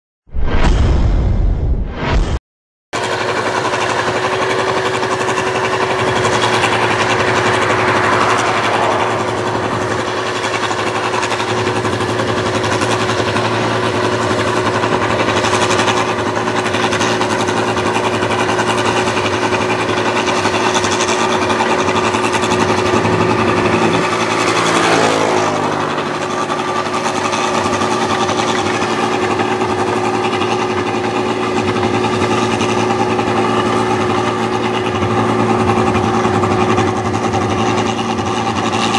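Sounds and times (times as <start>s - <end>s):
combine harvester humming: 3.0s - 38.9s.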